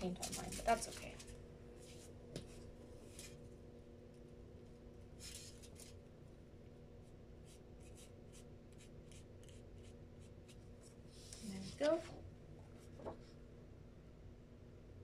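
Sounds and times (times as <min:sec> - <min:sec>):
paintbrush stroking paper: 0:07.4 - 0:11.9.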